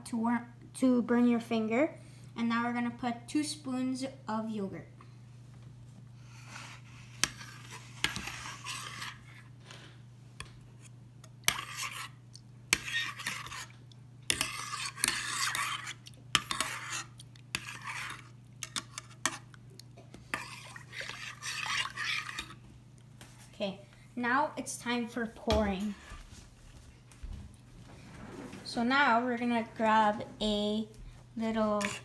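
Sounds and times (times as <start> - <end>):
spoon scraping pan: 6.4 - 9.5, 10.8 - 19.5, 20.2 - 22.6, 31.4 - 32.0.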